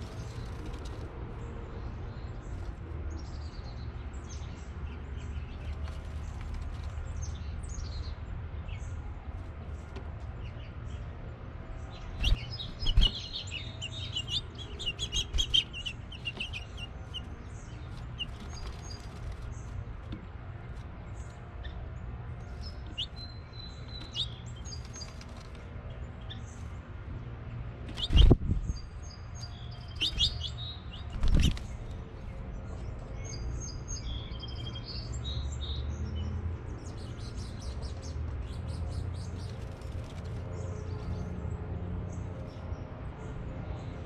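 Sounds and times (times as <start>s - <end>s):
finches chirping: 12.0s - 19.8s, 27.9s - 31.9s.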